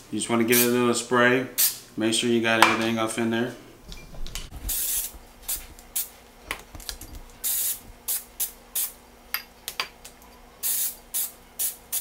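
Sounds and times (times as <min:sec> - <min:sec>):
aerosol cooking spray hissing: 0:04.7 - 0:06.1, 0:07.4 - 0:09.0, 0:10.6 - 0:12.0.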